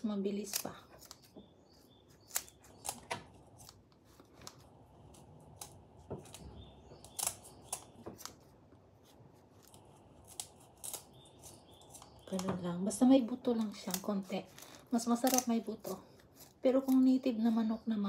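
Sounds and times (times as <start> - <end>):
scissors snipping raw chicken: 2.1 - 4.6, 5.5 - 8.4.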